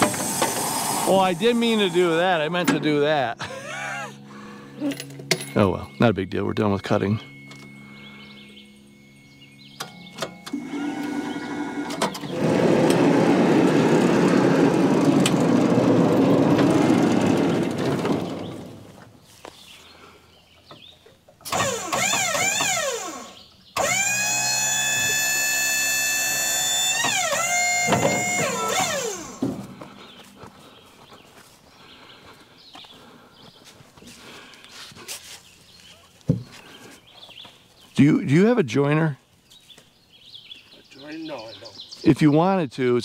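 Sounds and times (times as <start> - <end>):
electric motor whining: 0.0 - 2.8, 7.0 - 18.9, 21.5 - 30.1.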